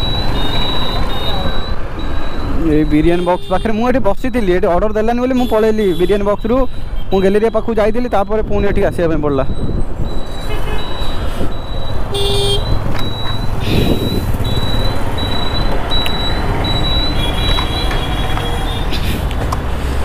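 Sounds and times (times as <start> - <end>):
high repeating beep: 0.0 - 3.2, 7.6 - 18.8
road traffic: 0.0 - 20.0
scooter engine and wind rumble: 8.2 - 20.0
horn toot: 12.1 - 12.7.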